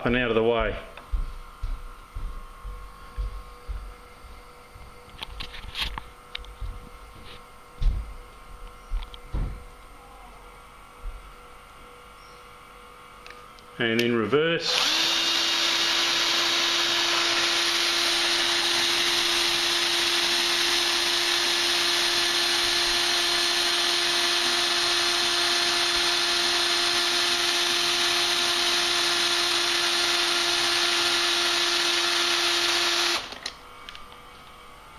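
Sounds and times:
cordless drill running: 0:14.6 - 0:33.6.

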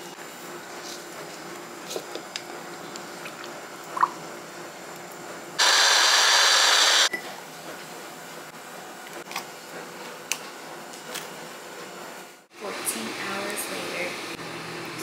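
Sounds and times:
blender running: 0:05.6 - 0:07.1.

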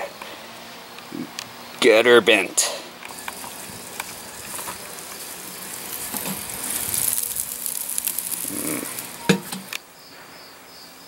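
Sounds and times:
meat sizzling on a grill: 0:03.0 - 0:09.8.

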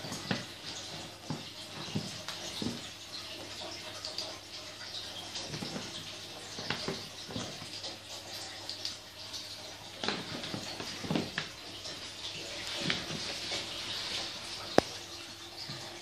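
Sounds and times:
paper bag rustling and crinkling: 0:12.5 - 0:14.5.

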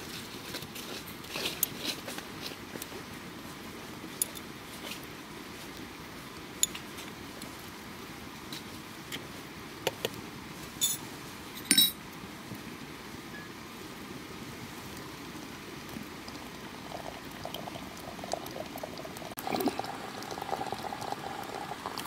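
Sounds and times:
dishes and utensils clinking: 0:10.8 - 0:12.0
ringing clink: 0:11.6 - 0:12.0.

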